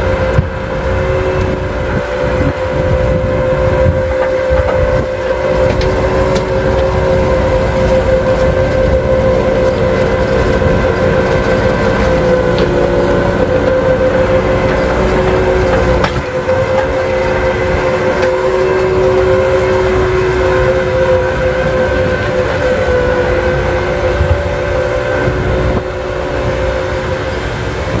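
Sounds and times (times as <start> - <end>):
beet loader machine running: 0.0 - 28.0.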